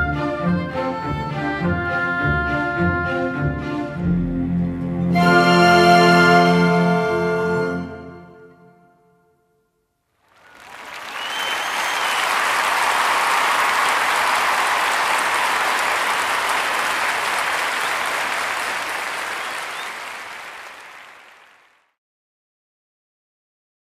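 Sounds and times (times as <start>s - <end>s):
orchestra final note: 5.0s - 8.6s
audience applauding: 10.2s - 22.0s
whistle: 10.4s - 15.2s, 19.2s - 21.5s.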